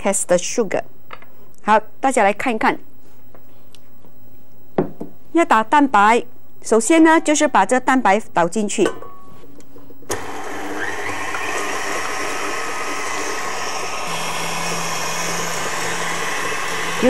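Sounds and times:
stand mixer whisking: 0:10.1 - 0:17.0.

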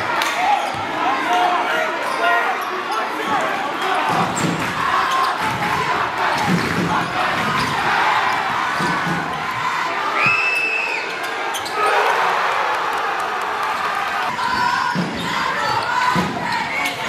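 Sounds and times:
crowd voices: 0:00.0 - 0:17.0
shoe squeaks: 0:11.1 - 0:11.9.

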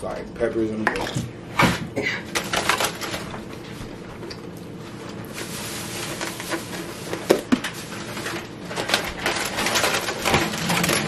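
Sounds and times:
aluminium foil crinkling: 0:02.3 - 0:11.0.

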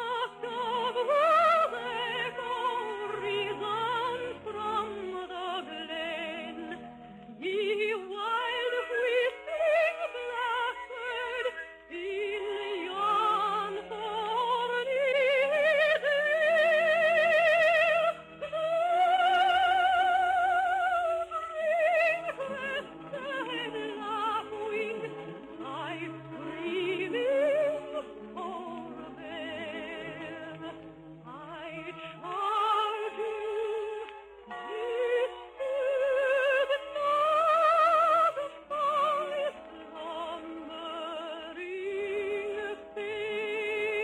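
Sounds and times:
soprano singing: 0:00.0 - 0:44.0.

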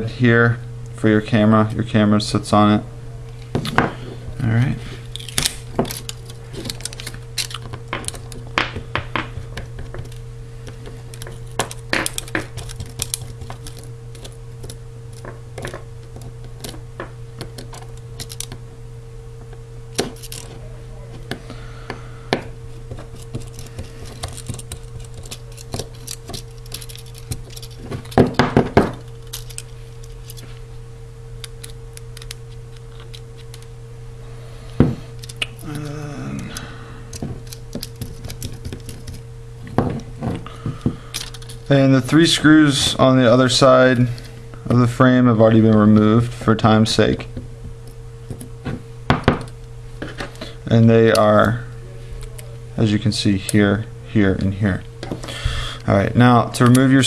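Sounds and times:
low hum: 0:00.0 - 0:57.0.

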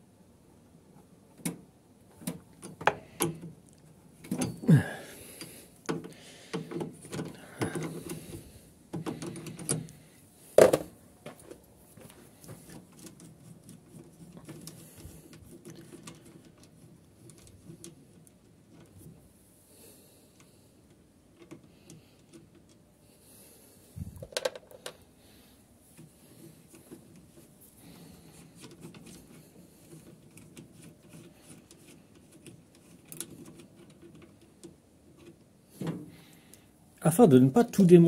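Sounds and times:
nut turned by hand: 0:02.2 - 0:10.9, 0:12.0 - 0:19.3, 0:25.9 - 0:36.6.

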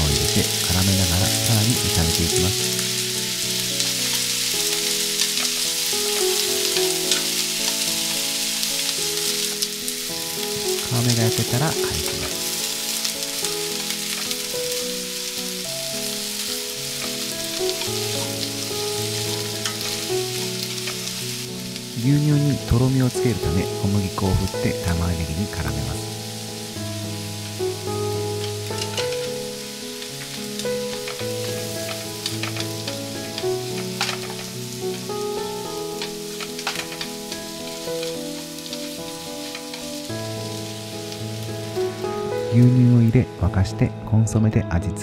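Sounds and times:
chicken sizzling in a frying pan: 0:00.0 - 0:43.5
gentle melody of held notes: 0:00.0 - 0:45.0
utensil clicking against pan: 0:16.5 - 0:21.9, 0:30.2 - 0:40.0.

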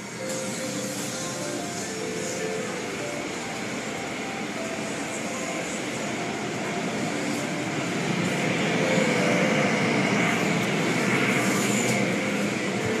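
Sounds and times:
car wash machinery drone: 0:00.0 - 0:13.0.

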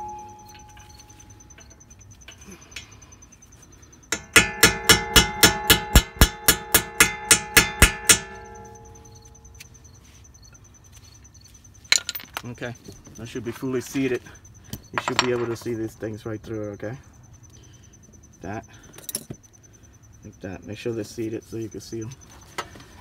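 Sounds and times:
brake caliper ringing: 0:00.0 - 0:10.6.

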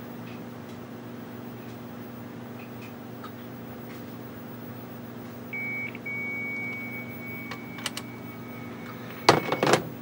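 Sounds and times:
high modem carrier tone: 0:05.5 - 0:10.0
lower modem tone: 0:05.5 - 0:10.0.

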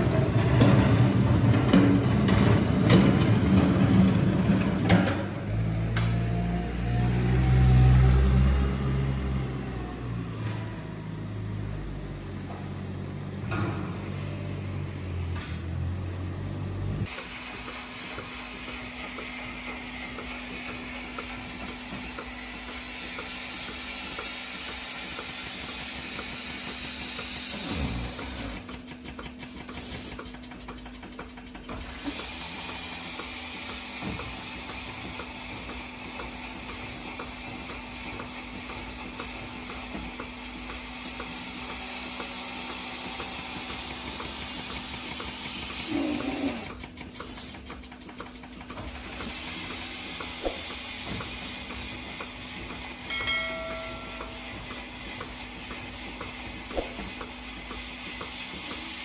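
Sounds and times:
milking machine air hiss: 0:17.0 - 0:30.5, 0:31.8 - 0:59.0.

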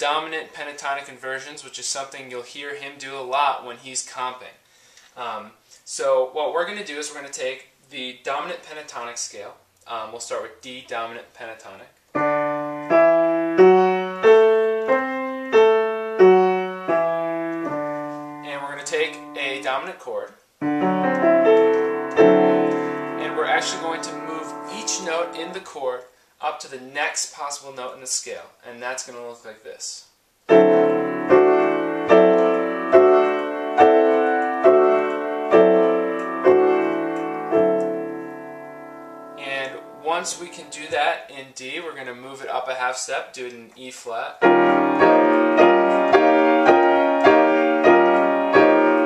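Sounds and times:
grand piano playing a scale: 0:12.2 - 0:19.8, 0:20.6 - 0:25.6, 0:30.5 - 0:41.0, 0:44.4 - 0:49.0.

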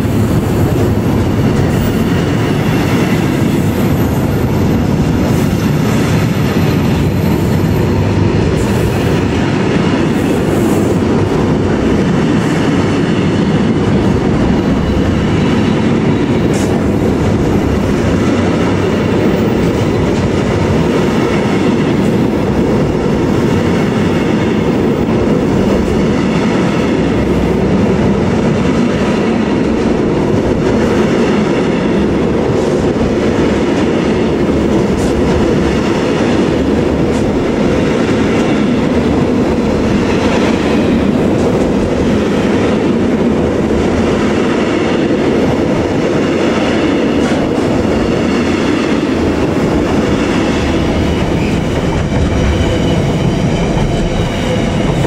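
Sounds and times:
freight train wheels on rails: 0:00.0 - 0:55.0.

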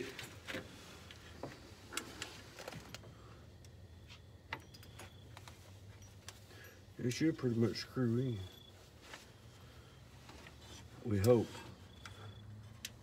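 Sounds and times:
faint metallic clicks and ticks: 0:10.3 - 0:13.0.

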